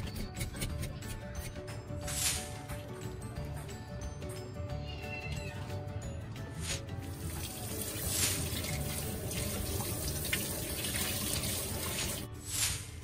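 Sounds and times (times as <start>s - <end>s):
tap water splashing in steel sink: 7.4s - 12.2s.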